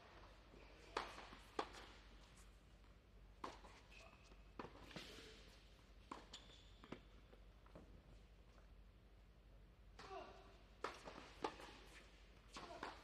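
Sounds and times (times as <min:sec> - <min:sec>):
tennis balls bouncing on hard court: 0:00.1 - 0:02.1, 0:03.4 - 0:03.9, 0:04.5 - 0:05.2, 0:06.0 - 0:07.9, 0:10.8 - 0:13.0
shoe squeaks: 0:06.2 - 0:07.1.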